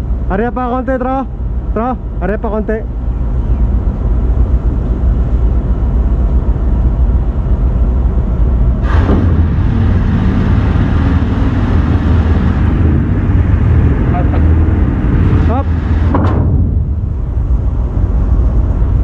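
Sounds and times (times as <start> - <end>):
mechanical hum: 0.0 - 19.0
winch low rumble: 0.0 - 19.0
metal clank: 16.1 - 17.0.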